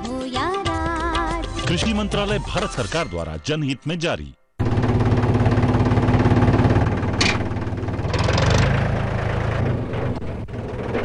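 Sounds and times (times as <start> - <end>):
engine idling: 4.6 - 11.0.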